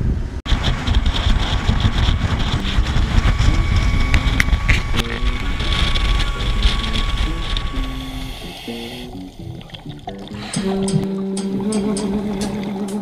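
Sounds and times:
wind buffeting microphone: 0:00.0 - 0:12.7
outboard motor rumble: 0:00.5 - 0:12.8
boat wake rushing: 0:00.5 - 0:13.0.

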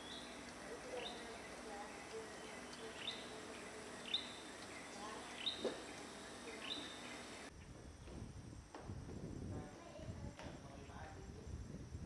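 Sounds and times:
bird chirping: 0:00.0 - 0:07.7
outdoor background hiss: 0:00.0 - 0:12.0.

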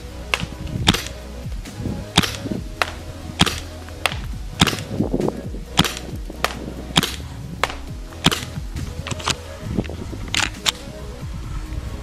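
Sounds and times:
airsoft gun gas shots: 0:00.3 - 0:01.2, 0:02.2 - 0:05.0, 0:05.8 - 0:08.6.

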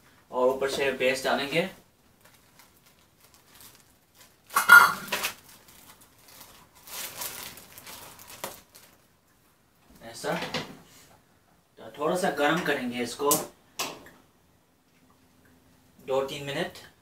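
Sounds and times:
plastic bag crinkling: 0:02.1 - 0:09.2.

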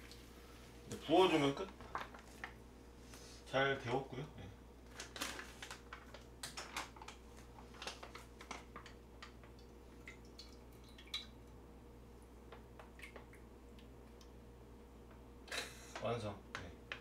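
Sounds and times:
faint steady hum: 0:00.0 - 0:17.0
plastic pouch crinkling: 0:04.8 - 0:09.0.

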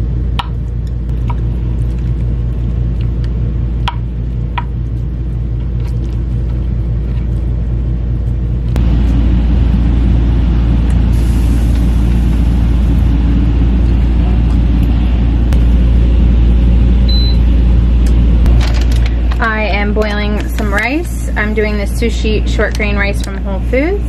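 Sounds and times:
air conditioner running: 0:00.0 - 0:24.0
pressure washer drone: 0:08.7 - 0:24.0
short electronic beep: 0:17.1 - 0:17.4.

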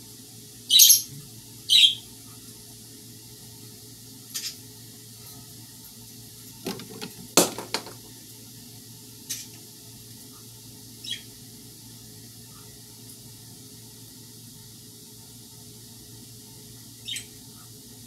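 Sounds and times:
taps on mesh screen: 0:06.6 - 0:08.0.

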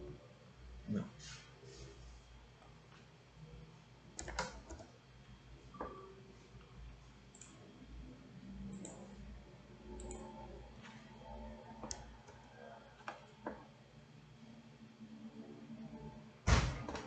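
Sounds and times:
low steady hum: 0:00.0 - 0:17.0
computer mouse and key clicks: 0:04.1 - 0:04.9, 0:05.7 - 0:07.6, 0:08.6 - 0:09.4, 0:10.0 - 0:13.7.

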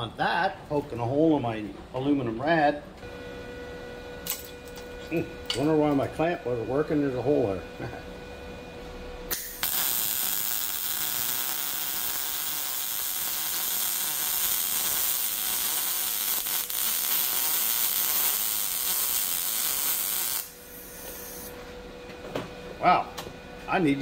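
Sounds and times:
welder arc burning: 0:09.3 - 0:21.5.

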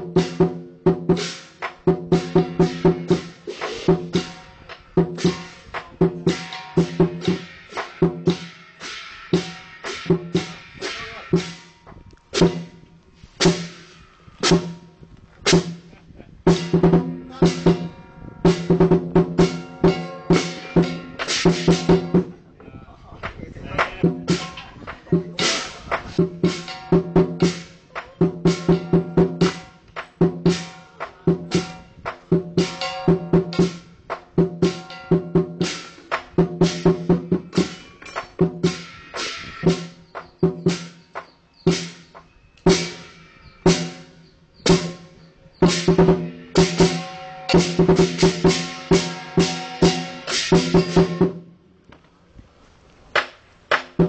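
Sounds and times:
cymbals clashing: 0:00.0 - 0:12.8, 0:13.4 - 0:15.9, 0:16.5 - 0:22.3, 0:24.0 - 0:51.4
large drum beating rhythmically: 0:00.0 - 0:12.8, 0:15.5 - 0:22.4, 0:23.2 - 0:51.5.

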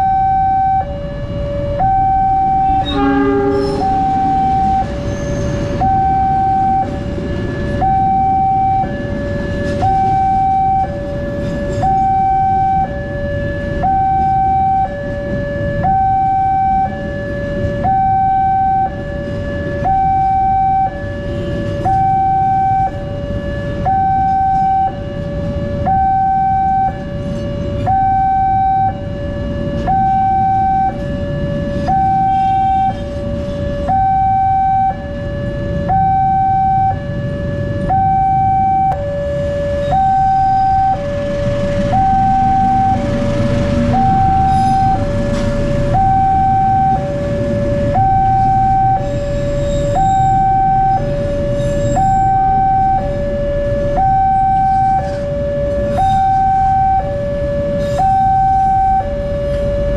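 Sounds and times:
two-tone crossing alarm: 0:00.0 - 0:59.9
train passing: 0:01.2 - 0:12.1, 0:39.2 - 0:52.4.

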